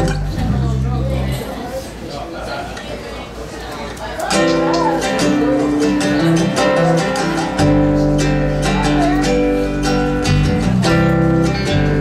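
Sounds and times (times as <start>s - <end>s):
acoustic guitar strumming: 0.0s - 1.5s, 4.3s - 12.0s
low bass notes: 0.0s - 1.5s, 7.6s - 12.0s.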